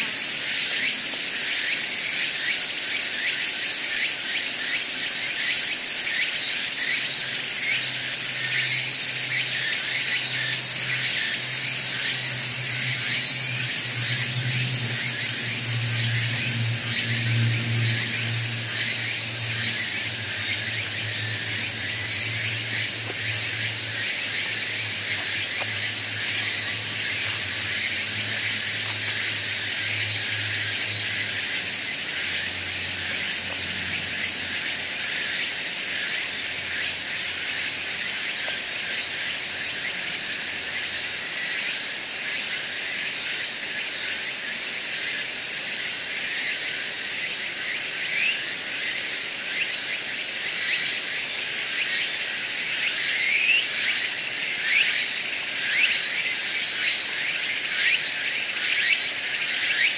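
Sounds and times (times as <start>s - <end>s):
insects buzzing chorus: 0.0s - 59.9s
faint low hum: 9.6s - 35.0s.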